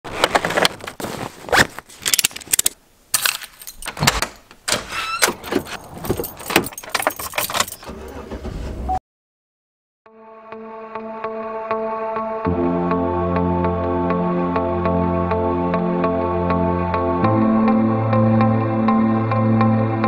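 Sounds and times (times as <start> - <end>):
keys jangling: 3.2 - 4.1, 5.3 - 8.1
deadbolt turning: 3.8 - 7.8.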